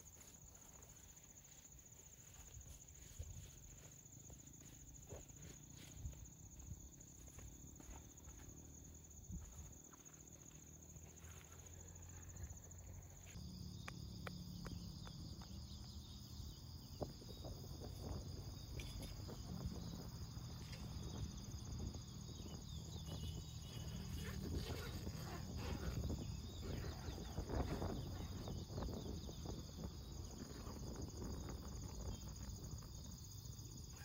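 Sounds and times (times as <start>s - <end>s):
crickets trilling: 0.0s - 34.0s
rustling inside nylon tent: 18.0s - 32.7s.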